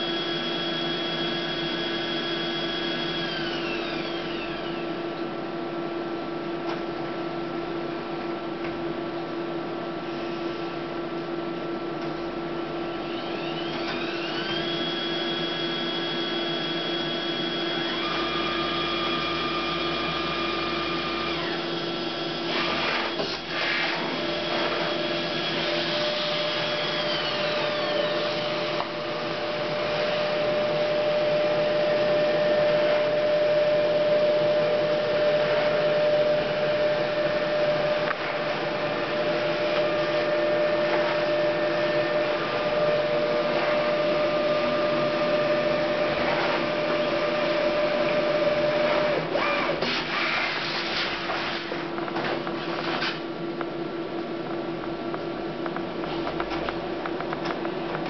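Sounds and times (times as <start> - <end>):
printer motor whine: 0.0 - 5.1, 12.6 - 50.8.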